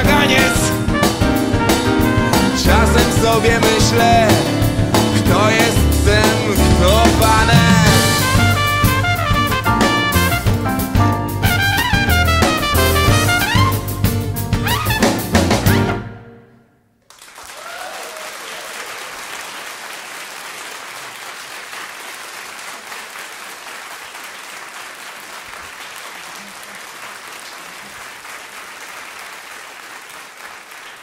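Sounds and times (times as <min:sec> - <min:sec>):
audience applauding: 0:17.0 - 0:31.0.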